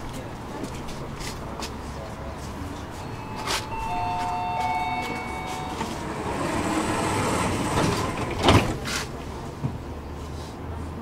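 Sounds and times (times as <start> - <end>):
tram doors moving: 0.0 - 10.0
two-note warning tone: 3.0 - 6.6
doors shutting with knocks: 3.2 - 8.9.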